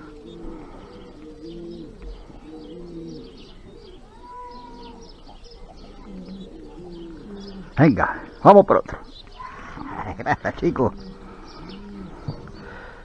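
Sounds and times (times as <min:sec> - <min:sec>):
pigeons cooing: 0:00.0 - 0:13.0
faint high chirps: 0:00.9 - 0:07.7.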